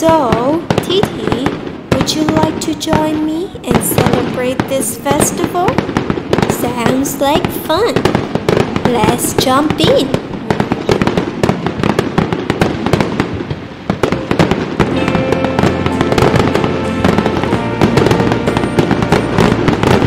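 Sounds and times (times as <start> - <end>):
firecrackers popping: 0.0 - 20.0
background music: 14.0 - 20.0.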